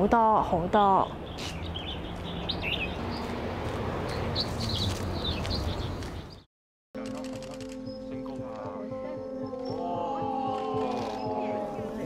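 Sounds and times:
birds chirping: 0.0s - 6.5s.

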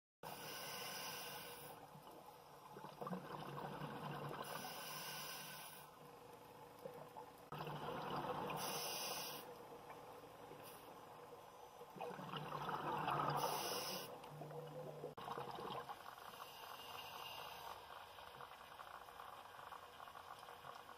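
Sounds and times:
diver breathing through regulator: 0.3s - 1.8s, 4.4s - 5.9s, 8.6s - 9.5s, 13.2s - 14.2s
underwater bubbles: 0.3s - 20.9s.

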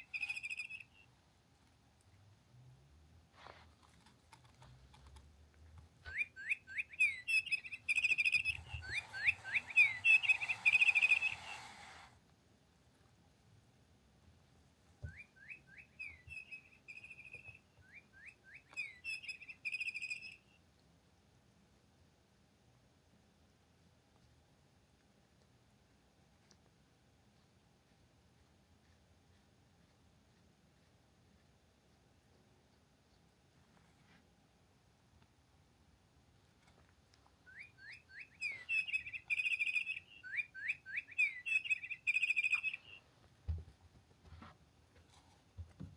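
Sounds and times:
electronic toy birdsong: 0.0s - 1.0s, 6.6s - 11.7s, 18.8s - 20.5s, 37.5s - 43.0s
electronic birdsong chirps and trill: 7.3s - 11.6s.

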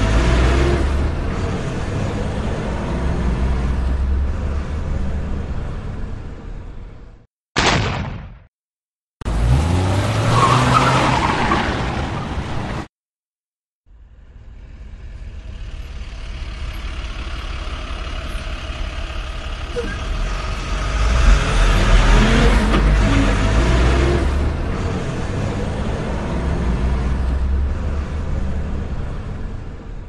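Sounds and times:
engine revving: 0.0s - 5.5s, 9.2s - 11.1s, 19.8s - 29.5s
vehicle running rumble: 13.9s - 30.0s.

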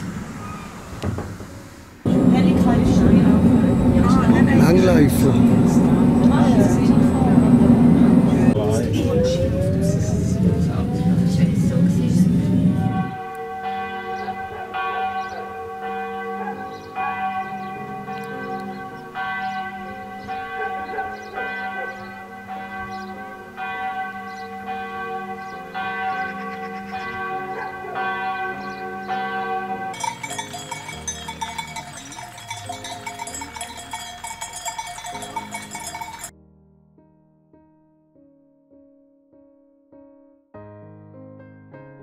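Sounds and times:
church bells ringing: 2.1s - 8.8s, 13.0s - 36.3s.

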